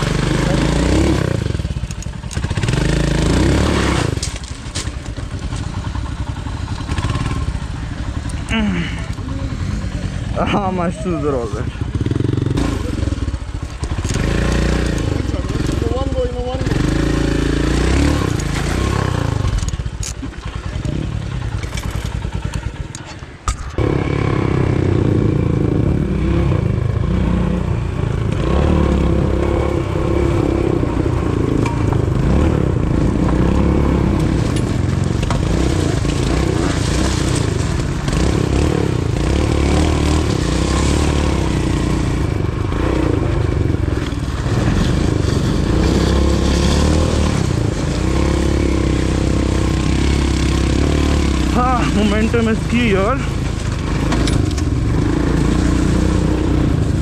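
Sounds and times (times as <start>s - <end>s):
motorcycle engine running: 0.0s - 57.0s
gravel stones clattering: 4.1s - 5.9s, 34.2s - 38.6s.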